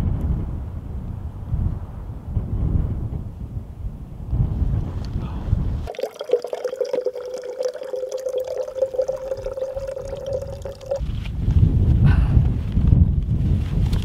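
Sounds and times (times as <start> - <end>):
wind noise on microphone: 0.0 - 14.0
water trickling into metal pot: 5.9 - 11.0.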